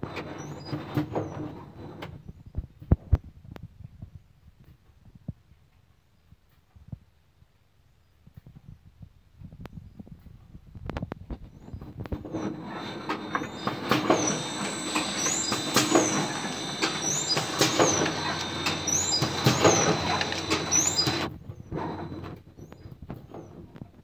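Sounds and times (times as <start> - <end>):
short high squeaks: 11.5 - 23.6
packing machine clatter: 12.2 - 21.3
machine knocking: 12.5 - 21.3.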